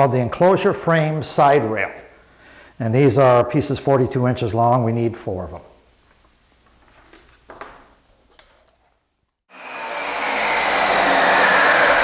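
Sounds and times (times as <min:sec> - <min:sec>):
electric workshop machine whining: 0:09.5 - 0:12.0.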